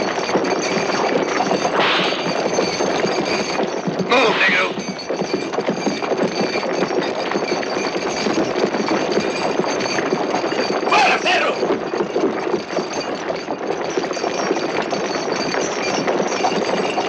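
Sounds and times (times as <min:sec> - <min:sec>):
chains clinking: 0:00.0 - 0:17.0
person calling out: 0:10.9 - 0:11.6.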